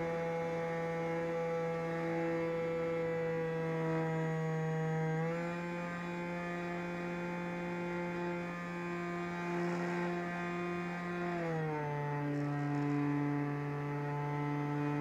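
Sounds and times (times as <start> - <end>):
electric motor and propeller buzzing: 0.0 - 15.0.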